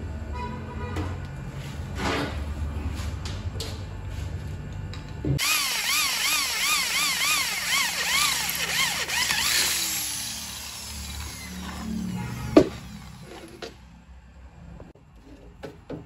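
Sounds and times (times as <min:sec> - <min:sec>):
electric drill boring into steel: 0:05.4 - 0:13.6.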